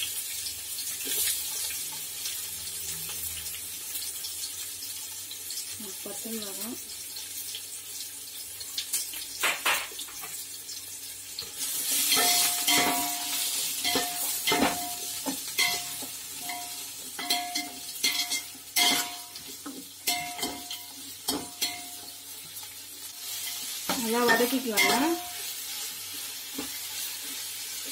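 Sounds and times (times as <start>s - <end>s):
onions sizzling in hot oil: 0.0s - 27.9s
pot ringing: 12.1s - 19.4s, 20.0s - 22.2s, 24.3s - 25.4s.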